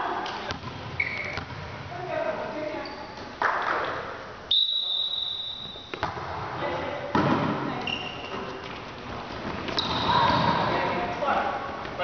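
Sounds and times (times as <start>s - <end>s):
referee's whistle: 4.5s - 5.9s
volleyball being struck: 7.1s - 7.7s.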